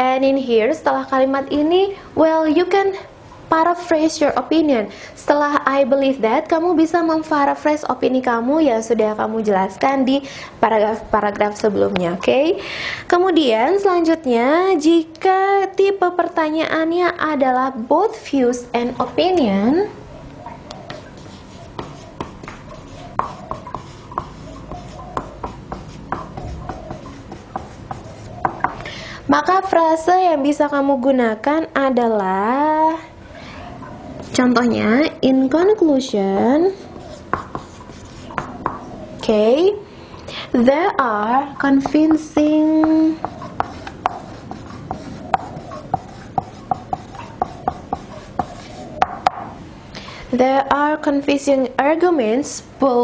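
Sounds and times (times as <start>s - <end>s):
marker squeaking on whiteboard: 20.4s - 28.9s, 33.5s - 39.4s, 41.2s - 49.5s.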